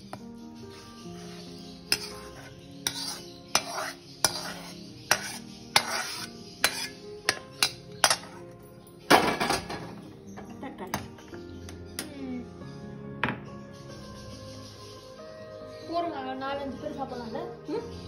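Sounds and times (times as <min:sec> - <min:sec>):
ladle scraping metal pan: 0:01.2 - 0:08.4
ladle clinking on metal pan: 0:02.9 - 0:08.4.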